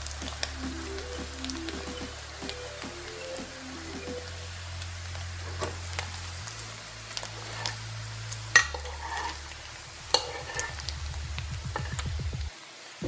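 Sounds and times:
sausage sizzling in frying pan: 0.0s - 13.0s
metal spoon clinking on pan: 8.6s - 9.4s.

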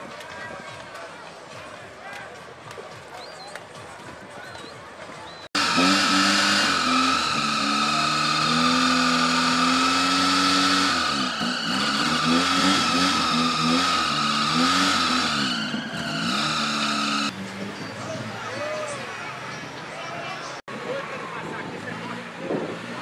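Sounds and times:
car engine revving: 5.5s - 19.7s.

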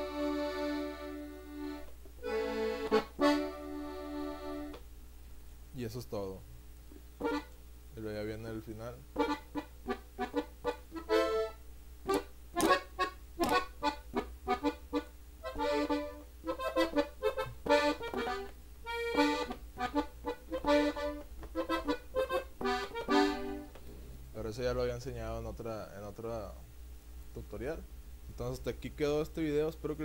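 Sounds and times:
button accordion melody: 0.0s - 4.8s, 7.2s - 7.6s, 9.2s - 23.8s.

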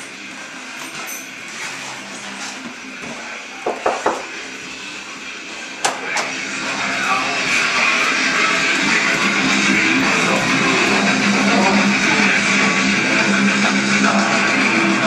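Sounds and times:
muffled band music: 3.1s - 15.0s
knocking on wooden door: 3.6s - 4.2s.

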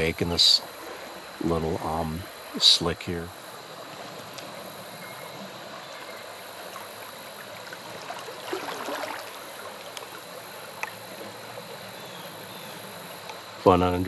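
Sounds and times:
creek running: 0.0s - 14.0s
splash in water: 7.6s - 10.2s.

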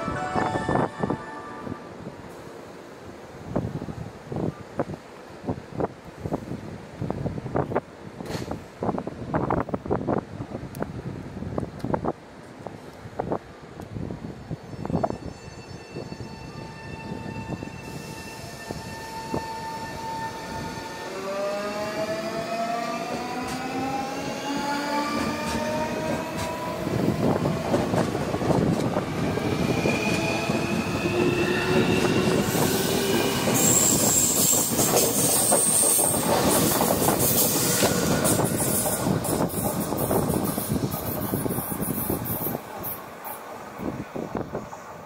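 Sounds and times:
rail running noise: 0.0s - 45.0s
high-pitched squeal: 29.2s - 42.6s.

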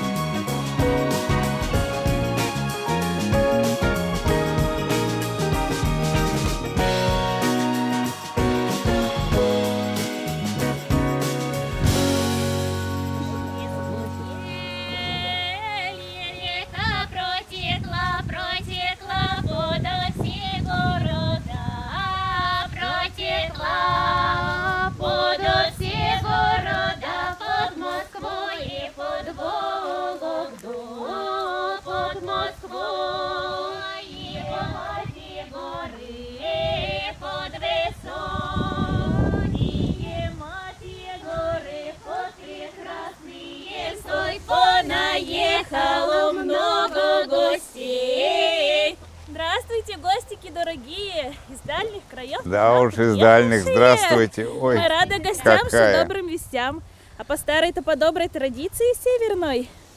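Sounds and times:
women singing folk song together: 13.6s - 59.7s.

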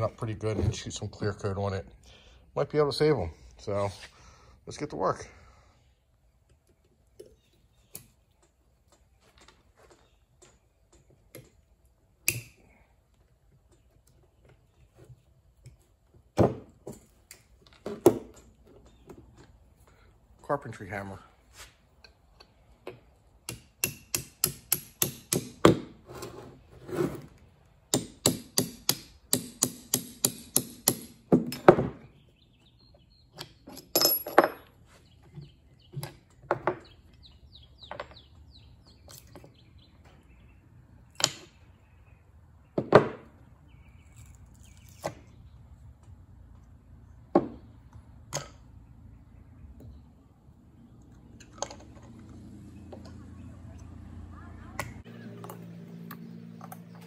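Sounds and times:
hammer tapping a metal punch: 27.9s - 31.6s
metal parts knocking and clinking: 33.6s - 34.8s.

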